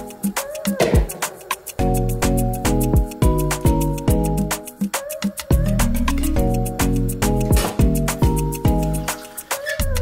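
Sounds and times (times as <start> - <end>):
steady drum beat: 0.0 - 10.0.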